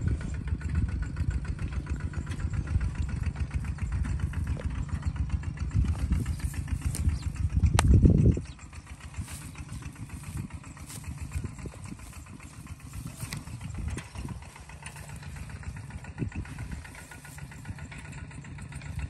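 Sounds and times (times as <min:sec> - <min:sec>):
cow tearing and chewing grass: 0:00.0 - 0:19.0
low rumble: 0:00.0 - 0:19.0.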